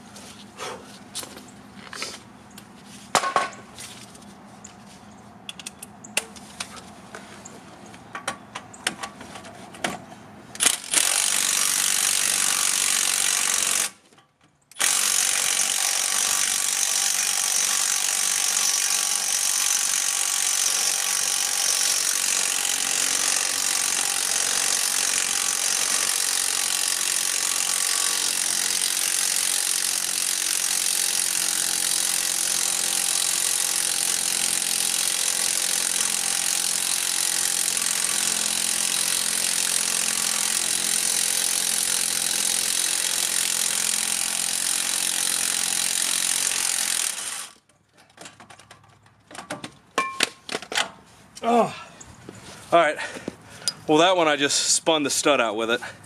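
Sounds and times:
impact wrench hammering: 0:50.0 - 0:50.4.

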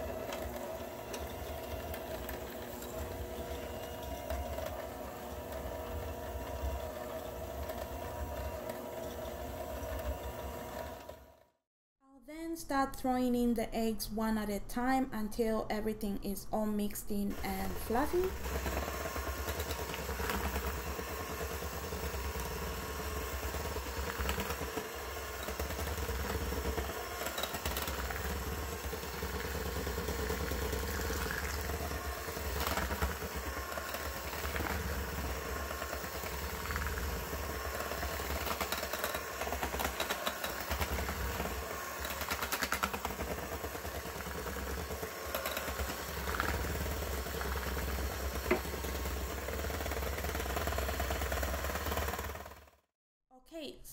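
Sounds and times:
electric hand mixer whirring: 0:00.0 - 0:11.6, 0:17.3 - 0:52.9.

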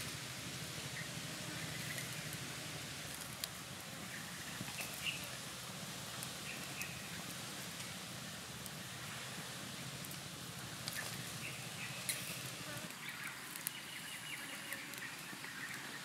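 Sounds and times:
wood fire crackling and popping: 0:00.0 - 0:14.0, 0:14.8 - 0:16.0
outdoor hiss: 0:00.0 - 0:16.0
faint bird chirps: 0:10.9 - 0:16.0.

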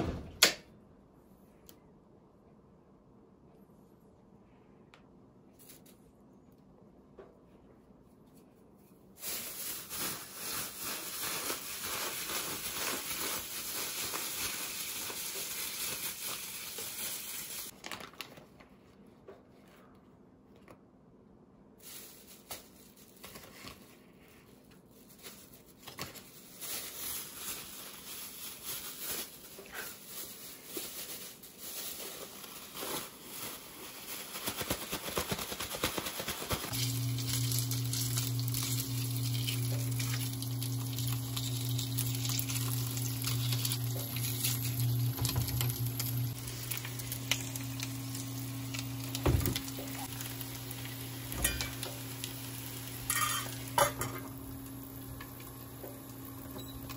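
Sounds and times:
plastic bag crinkling: 0:09.1 - 0:18.7, 0:21.8 - 0:56.5.

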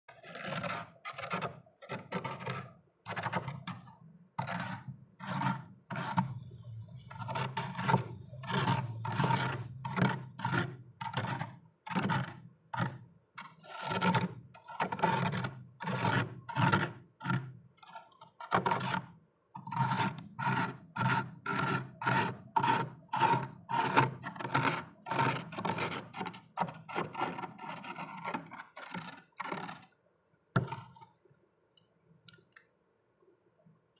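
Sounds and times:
knife scraping frost: 0:07.0 - 0:29.9.

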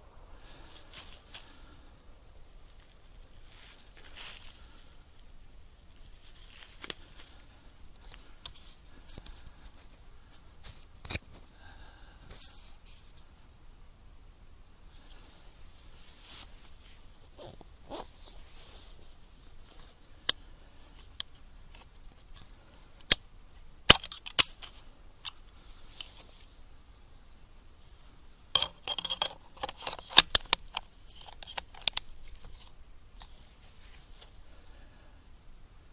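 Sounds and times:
scope handling clicks and ticks: 0:28.6 - 0:32.7.

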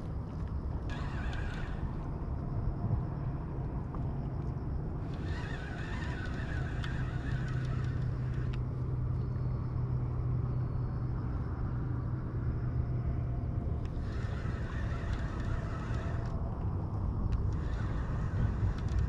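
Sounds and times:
steady low hum: 0:00.0 - 0:19.0
fishing reel gears whirring: 0:00.6 - 0:02.3, 0:04.9 - 0:09.2, 0:13.8 - 0:19.0.

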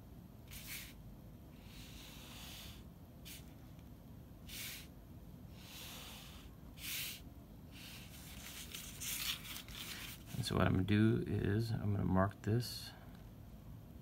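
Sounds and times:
felt-tip pen scratching on paper: 0:00.5 - 0:01.0.

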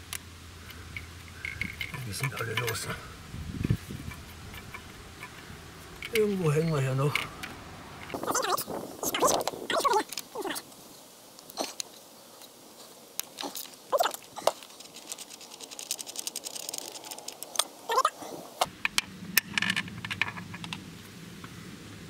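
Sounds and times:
low steady rumble: 0:00.0 - 0:09.7
tool clinking against metal: 0:01.0 - 0:07.3
hand ratchet clicking: 0:03.6 - 0:06.3.

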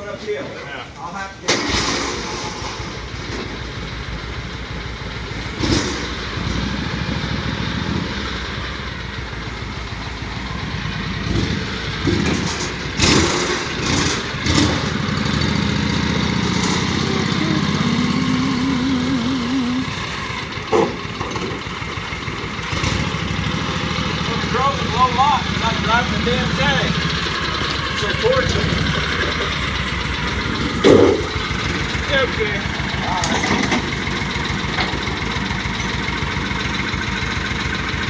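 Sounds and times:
engine running at low revs: 0:01.6 - 0:38.0
loud metal clunks: 0:11.4 - 0:15.0, 0:20.6 - 0:21.7, 0:30.2 - 0:31.8.

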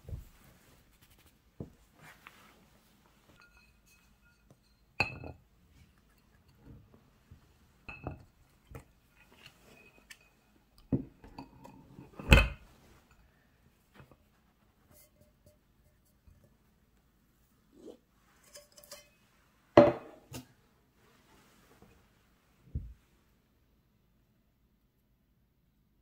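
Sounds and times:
pan and plate clinking: 0:03.3 - 0:05.4, 0:18.4 - 0:19.2.

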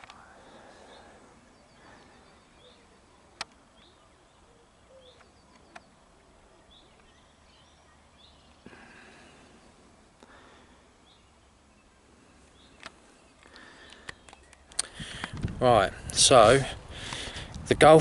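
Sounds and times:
sharp clicks: 0:00.0 - 0:00.2, 0:03.3 - 0:03.9, 0:05.2 - 0:05.9, 0:12.8 - 0:15.6
small birds chirping: 0:00.0 - 0:18.0.

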